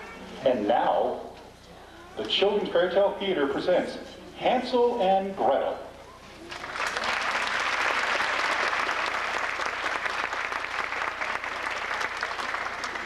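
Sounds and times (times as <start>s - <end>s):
audience applauding: 6.5s - 13.0s.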